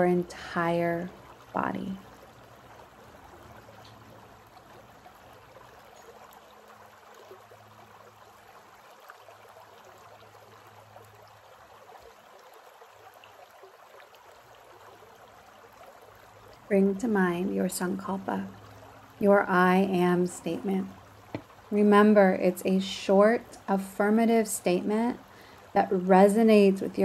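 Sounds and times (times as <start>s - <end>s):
creek running over rocks: 0.0s - 27.0s.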